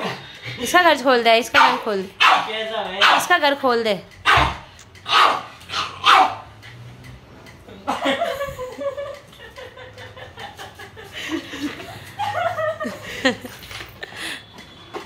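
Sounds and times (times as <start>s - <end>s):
dog barking sharply: 1.6s - 3.3s, 4.2s - 6.4s.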